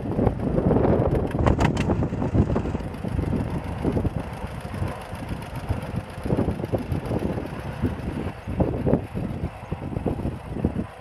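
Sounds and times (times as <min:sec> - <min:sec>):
tractor engine running: 0:00.0 - 0:11.0.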